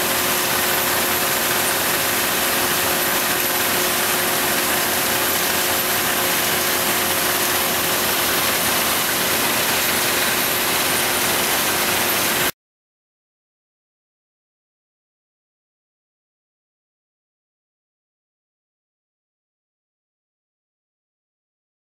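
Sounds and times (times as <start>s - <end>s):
paper sheeter machine running: 0.0s - 12.5s.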